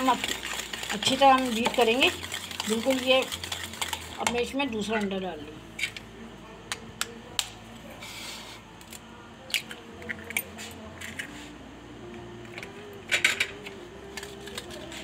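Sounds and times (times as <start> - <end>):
whisk beating against bowl: 0.0 - 5.2.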